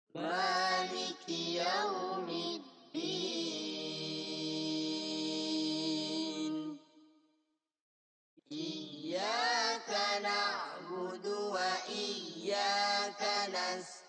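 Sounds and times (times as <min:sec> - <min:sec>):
boy chanting into a microphone: 0:04.6 - 0:06.8.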